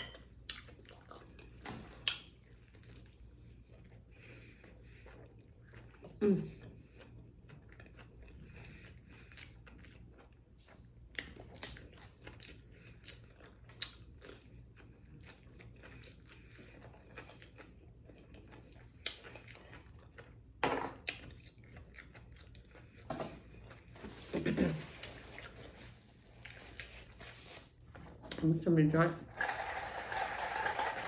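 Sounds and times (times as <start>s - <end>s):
chewing and biting fried fish: 0.4s - 24.0s
wet mouth smacks and crunches: 2.0s - 2.4s.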